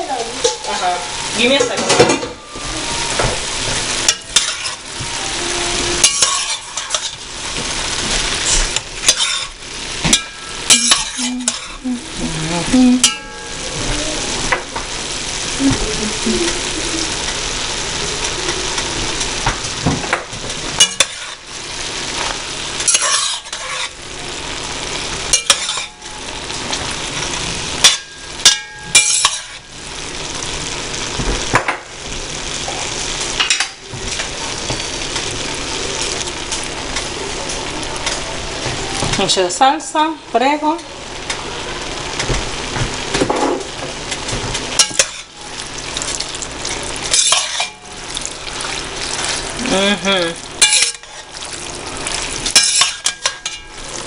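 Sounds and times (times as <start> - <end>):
spoon knocking and scraping pot: 9.1 - 11.8, 22.9 - 23.9, 50.6 - 51.2.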